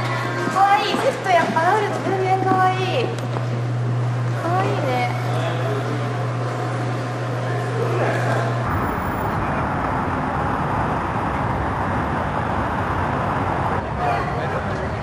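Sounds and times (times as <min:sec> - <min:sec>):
cars driving past: 0:08.3 - 0:14.8
low hum: 0:08.6 - 0:12.7.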